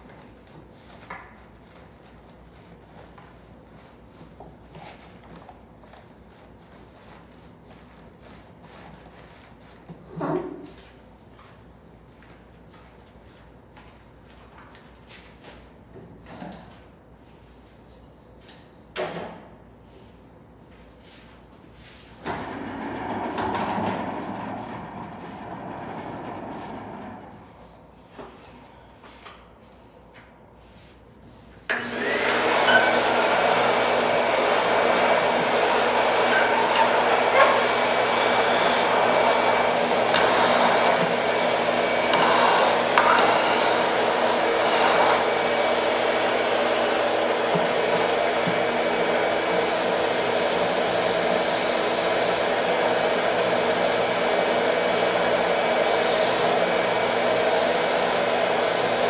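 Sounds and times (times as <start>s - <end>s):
shop vacuum running: 21.9s - 28.5s, 31.6s - 59.0s.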